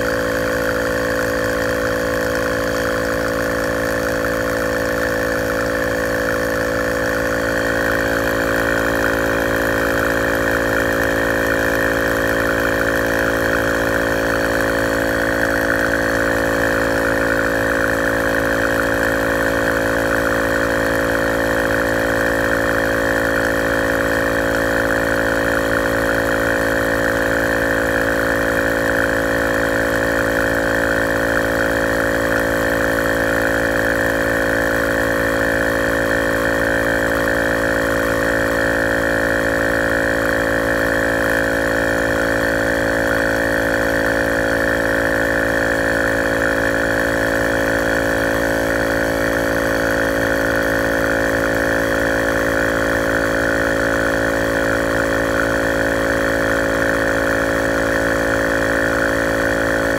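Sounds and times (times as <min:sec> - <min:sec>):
tyre inflator compressor running: 0:00.0 - 0:59.9.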